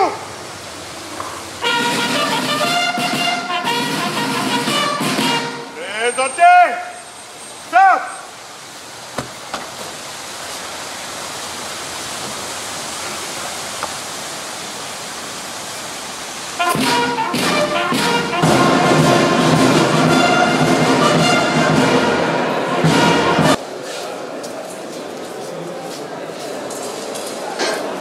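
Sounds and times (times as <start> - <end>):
steady rushing hiss: 0.0 - 21.1
drum strokes: 1.6 - 5.8, 16.6 - 23.6
brass band music: 1.6 - 6.1, 16.6 - 23.6.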